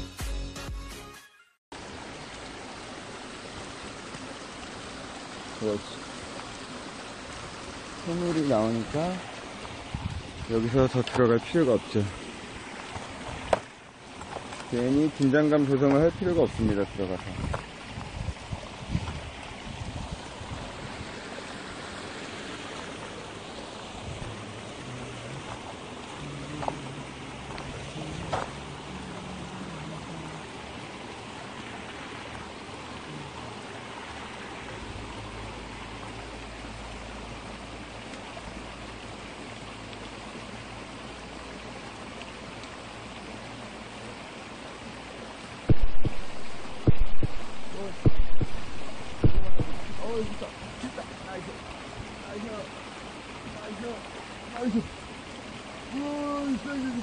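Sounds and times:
rainwater pouring into reservoir: 1.8s - 57.0s.

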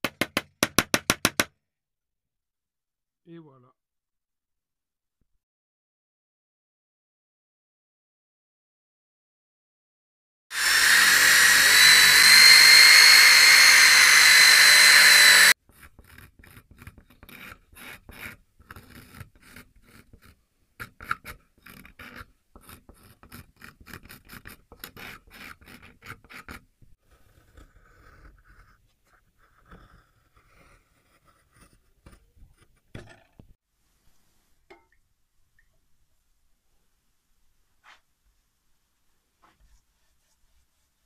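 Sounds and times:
hand blade scraping wood: 10.5s - 32.8s.

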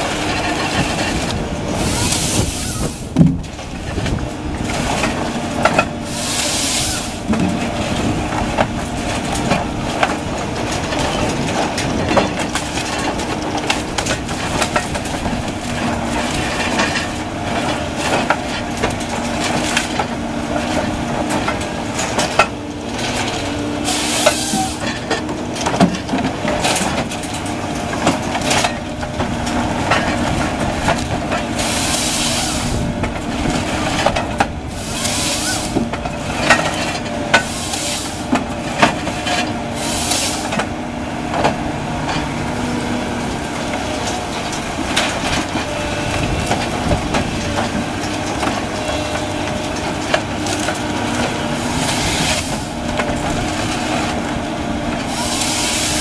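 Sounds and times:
diesel engine and hydraulics: 0.0s - 56.0s
short hissing bursts: 6.1s - 7.2s.

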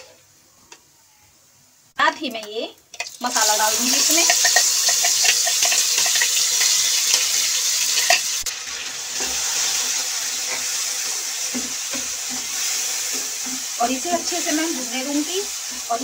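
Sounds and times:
paste sizzling in hot oil: 3.0s - 16.0s
spatula stirring: 4.0s - 7.3s, 9.2s - 15.0s.

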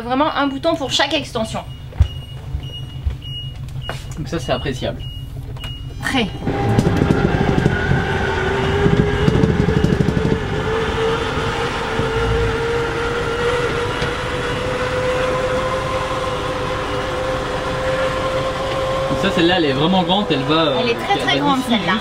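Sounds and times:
engine idling rumble: 0.0s - 22.0s.

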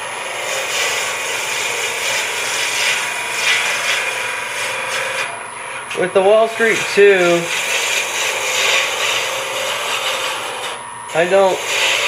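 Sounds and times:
gouge shaving wood on a lathe: 0.0s - 12.0s.

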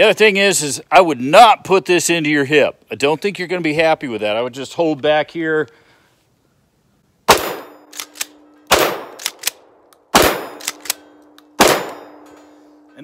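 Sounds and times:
shotgun shots: 7.3s - 12.2s.

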